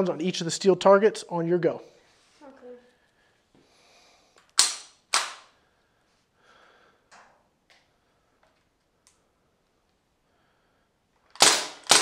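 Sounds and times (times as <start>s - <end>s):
bb rifle shots cracking: 4.6s - 5.5s, 11.3s - 12.0s.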